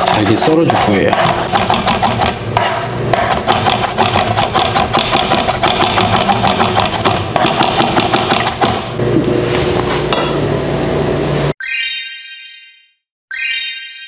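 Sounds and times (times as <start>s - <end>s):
knife chopping on cutting board: 0.0s - 8.9s.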